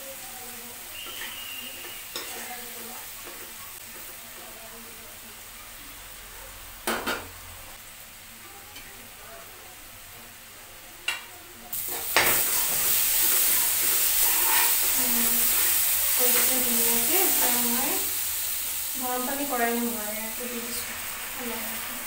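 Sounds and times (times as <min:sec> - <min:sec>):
vegetables sizzling in oil: 0:00.0 - 0:22.0
spatula stirring in pan: 0:00.9 - 0:04.6, 0:11.8 - 0:22.0.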